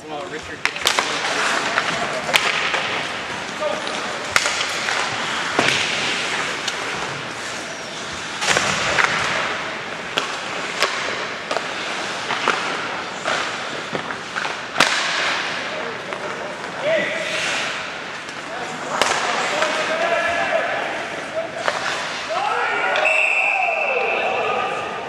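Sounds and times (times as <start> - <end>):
hockey sticks and puck clacking: 0.0 - 23.2
skate blades scraping on ice: 0.8 - 14.8, 16.3 - 20.0, 20.9 - 22.4.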